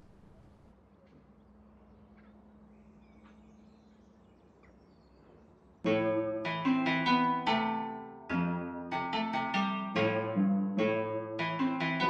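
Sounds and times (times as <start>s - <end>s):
slow plucked harp-like melody: 5.9s - 12.0s.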